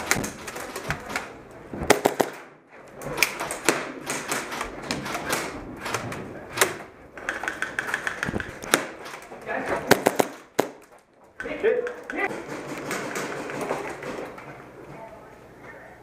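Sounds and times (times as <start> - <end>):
sharp cracks: 0.0 - 13.7
footsteps and gear knocking: 2.8 - 14.6.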